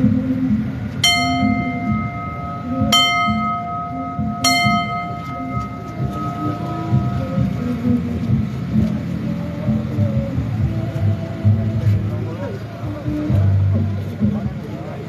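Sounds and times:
crowd noise: 0.0 - 15.0
metal bell ringing: 1.0 - 7.7.

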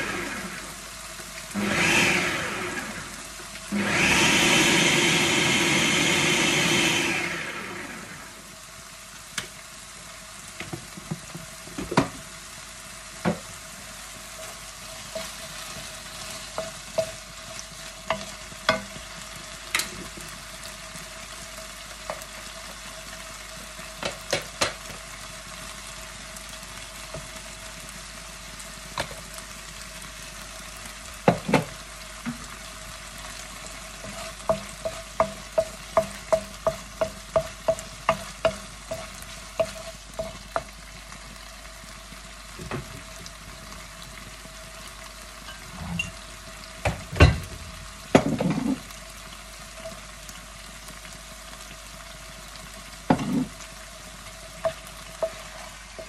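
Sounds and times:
chicken sizzling in oil: 0.0 - 56.0
wooden spoon knocking on pan: 10.6 - 12.2, 13.2 - 13.5, 16.5 - 17.3, 18.0 - 19.1, 24.0 - 25.0, 31.2 - 32.5, 34.0 - 40.8, 42.6 - 43.2, 46.8 - 48.8, 53.1 - 53.6, 54.6 - 56.0.

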